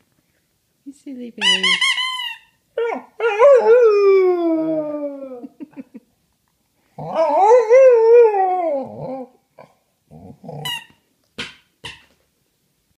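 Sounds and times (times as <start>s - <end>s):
dog howling whine: 7.0s - 9.4s.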